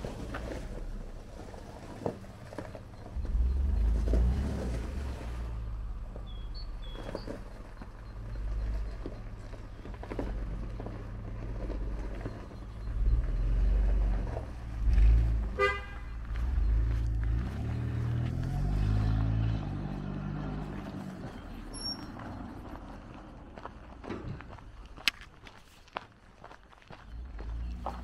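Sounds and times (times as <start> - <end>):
car engine running: 0.0 - 23.8
car horn toot: 15.5 - 16.7.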